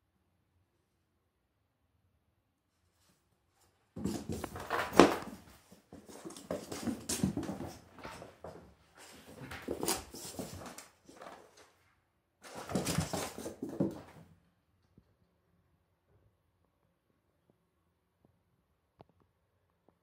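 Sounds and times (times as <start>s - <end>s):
cats scuffling and bumping: 4.0s - 11.8s, 12.4s - 14.3s.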